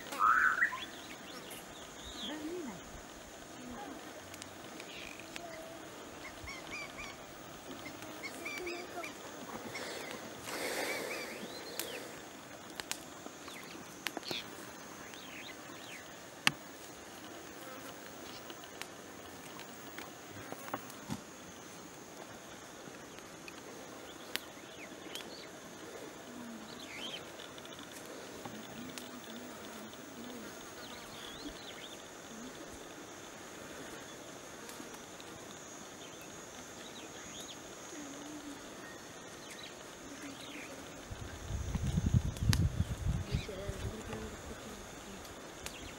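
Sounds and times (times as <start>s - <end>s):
bird chirps: 0.0s - 2.4s
high-pitched insect drone: 0.0s - 3.9s, 4.8s - 12.5s, 35.6s - 45.9s
high insect drone: 0.0s - 45.9s
short chirps: 0.1s - 0.9s.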